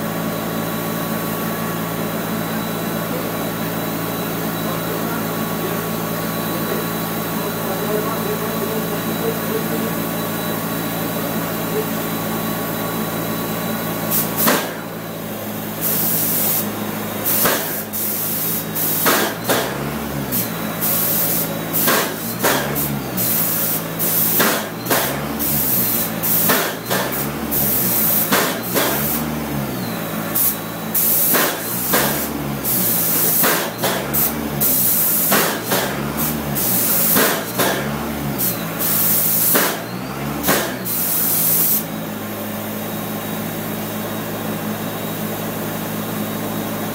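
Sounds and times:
spray gun hissing in bursts: 14.1s - 14.8s, 15.4s - 29.3s, 30.2s - 39.8s, 40.4s - 41.9s.

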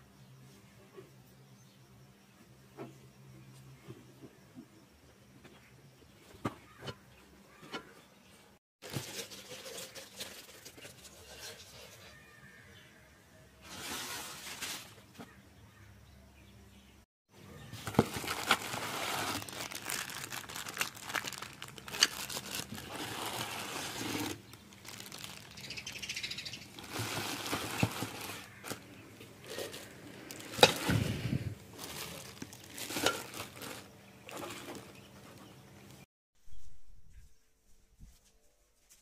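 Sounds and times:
cardboard carton rustling: 17.8s - 25.5s, 26.8s - 28.8s
plastic bag crinkling: 17.8s - 31.0s, 31.7s - 35.0s.

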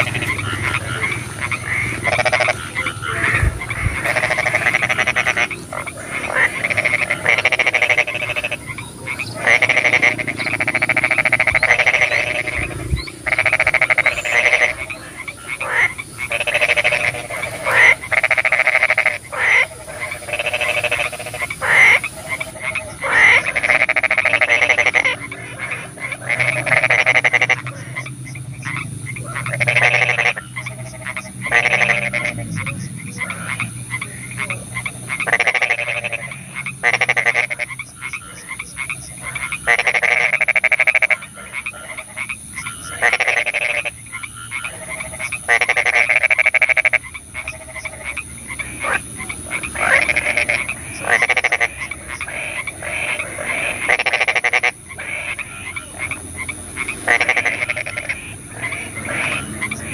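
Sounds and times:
frogs croaking: 0.0s - 59.9s
faint high hiss: 11.1s - 23.8s.

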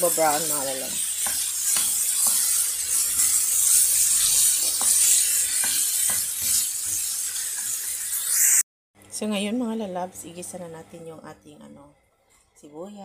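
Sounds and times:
chicken sizzling in a pan: 0.0s - 8.6s
wooden spoon stirring: 0.6s - 7.8s.

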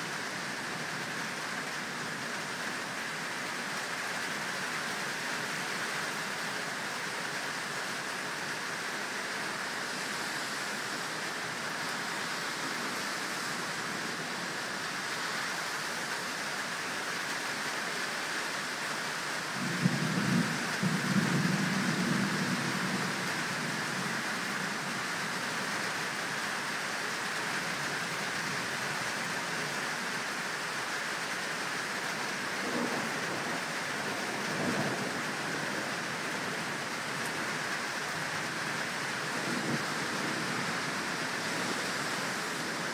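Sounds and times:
rain hiss: 0.0s - 42.9s
thunderclap rumbling: 32.6s - 36.1s, 39.2s - 42.8s.

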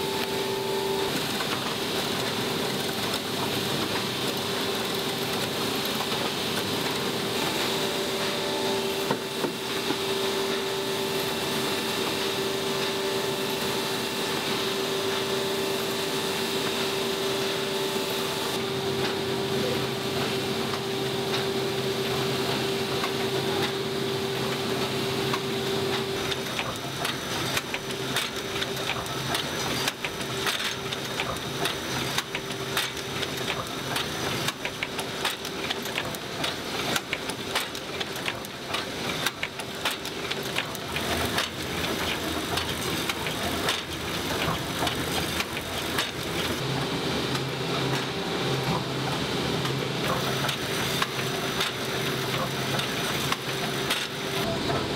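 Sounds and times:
machinery humming: 0.0s - 54.9s
fast clatter of mechanism clicks: 26.3s - 46.6s, 50.0s - 54.2s.

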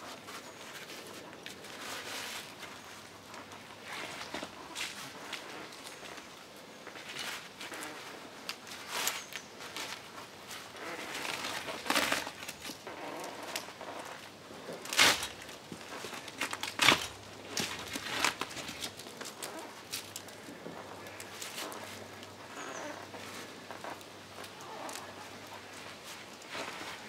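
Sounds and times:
clothing brushing against bark: 0.0s - 27.0s.

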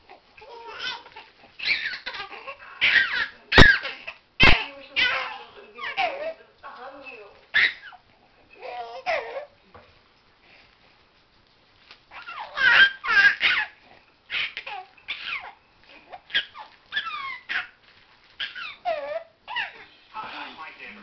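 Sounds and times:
baby laughing and squealing: 0.4s - 6.3s, 7.6s - 8.0s, 12.1s - 15.6s, 16.3s - 17.8s, 18.4s - 19.8s.

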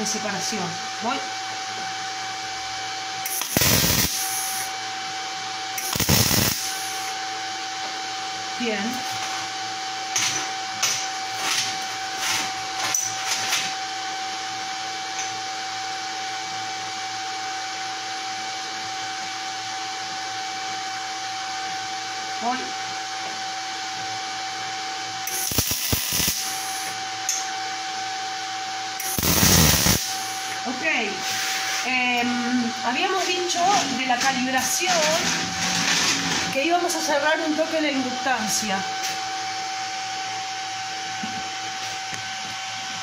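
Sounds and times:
steady machine hum: 0.0s - 43.0s
welding arc crackling: 3.2s - 4.7s, 5.8s - 7.1s, 25.3s - 27.0s, 29.0s - 30.5s.

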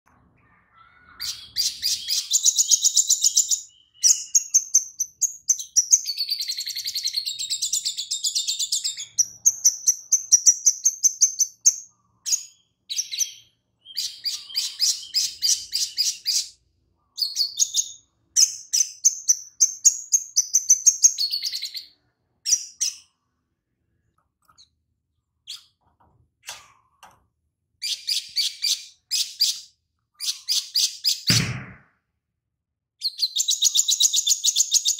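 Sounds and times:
bird singing high trills: 0.4s - 23.2s.

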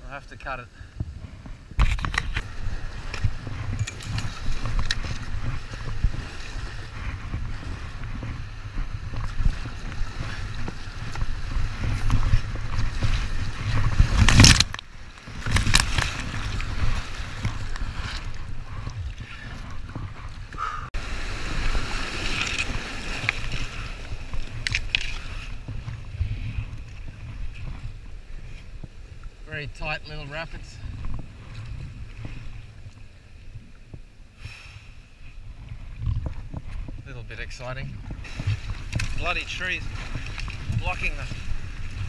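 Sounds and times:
wind rumble on microphone: 0.0s - 42.0s
water splashing against boat: 0.4s - 42.0s
rushing floodwater: 2.3s - 28.5s, 37.2s - 42.0s.

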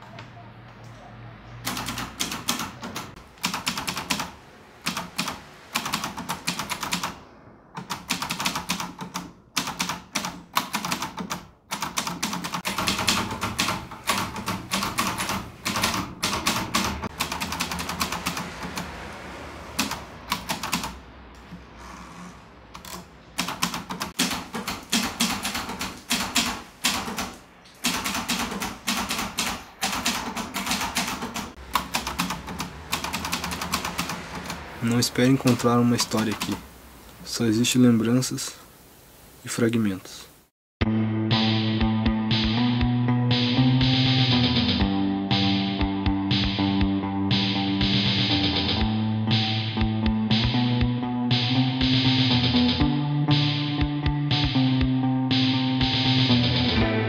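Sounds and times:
typewriter keys clacking: 1.7s - 4.3s, 7.8s - 18.9s, 22.8s - 34.6s, 35.2s - 36.6s.

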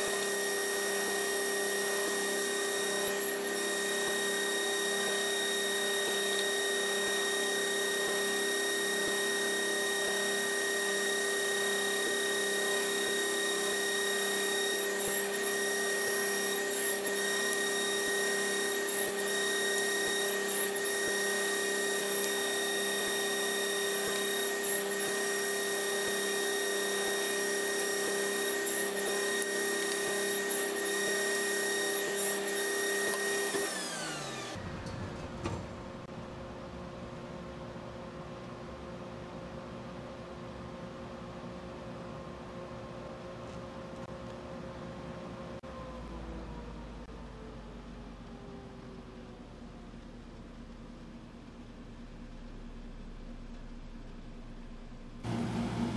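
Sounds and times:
table saw running: 0.0s - 36.1s.

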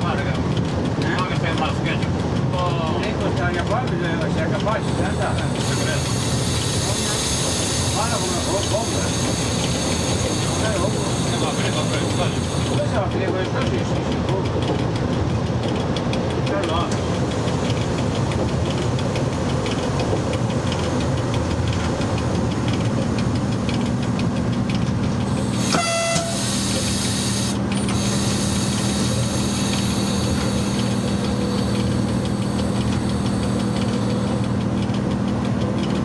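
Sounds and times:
train wheels rumbling on rail: 0.0s - 36.0s
train horn blast: 25.6s - 28.7s.

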